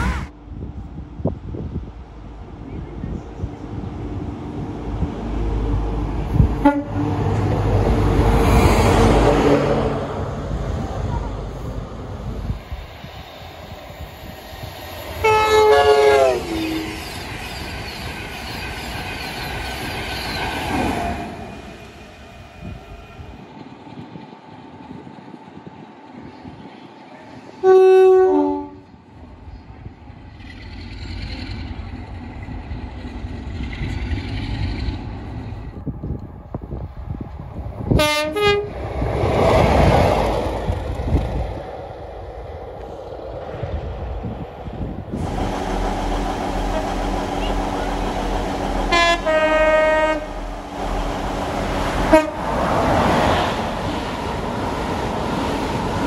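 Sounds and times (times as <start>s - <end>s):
diesel train rumbling past: 0.0s - 56.0s
train horn toot: 6.6s - 7.2s, 15.2s - 17.0s, 27.6s - 28.9s, 37.9s - 38.8s, 48.9s - 50.4s, 52.1s - 52.5s.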